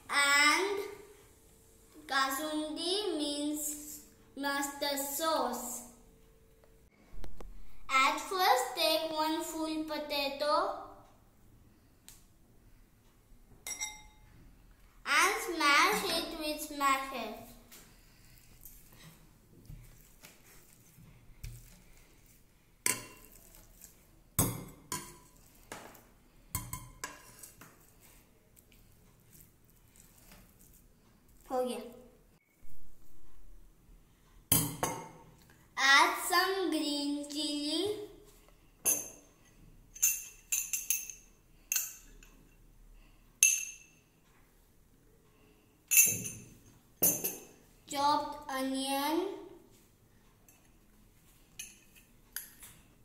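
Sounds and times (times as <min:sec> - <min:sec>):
spoon clinking on glass bowl: 0:13.6 - 0:14.2, 0:40.0 - 0:42.3, 0:43.4 - 0:44.0, 0:45.9 - 0:47.5.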